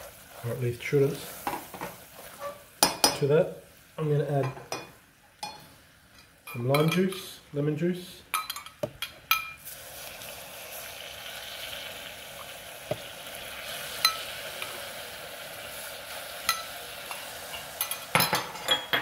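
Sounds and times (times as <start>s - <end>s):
syrup sizzling in a saucepan: 0.0s - 8.4s, 9.1s - 18.9s
juice pouring into a pan: 9.6s - 17.8s.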